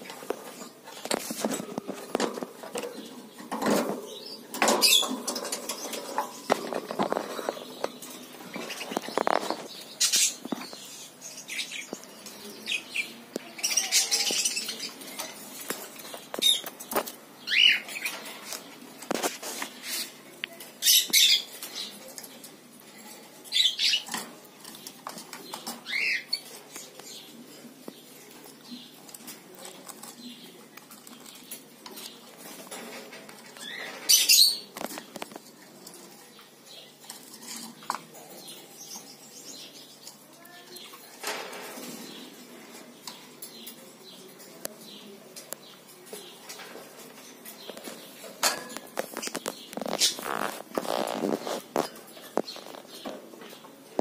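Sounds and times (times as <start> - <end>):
bird scrabbling in wire cage: 0.3 - 10.3, 47.8 - 53.0.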